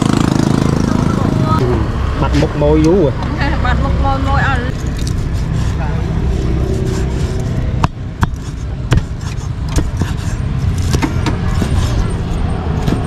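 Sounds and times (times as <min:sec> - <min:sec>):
cleaver chopping on wooden block: 0:07.8 - 0:11.9.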